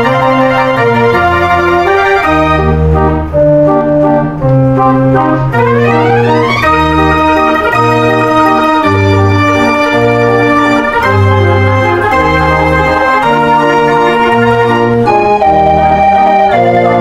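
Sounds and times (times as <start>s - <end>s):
pipe organ playing a tune: 0.0s - 17.0s.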